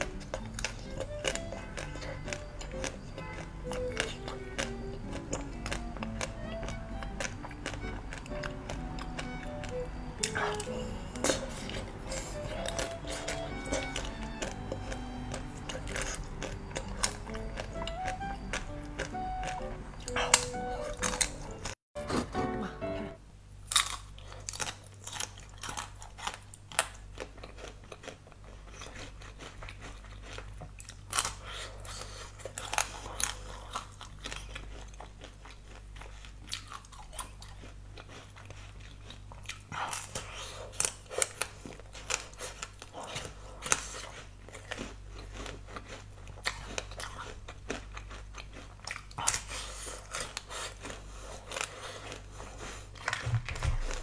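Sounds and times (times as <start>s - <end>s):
crisp chewing crunches: 0.0s - 21.8s, 23.7s - 54.0s
low steady hum: 0.0s - 54.0s.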